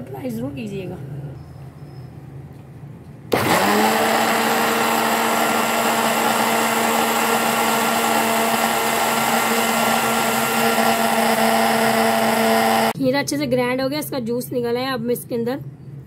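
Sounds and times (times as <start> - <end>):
electric blender running: 3.3 - 13.0.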